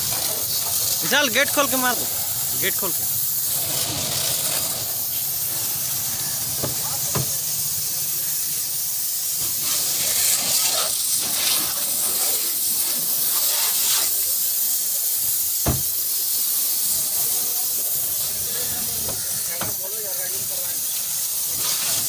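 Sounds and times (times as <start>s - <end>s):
hose water spraying and splashing: 0.0s - 22.0s
sharp knock: 15.6s - 15.8s.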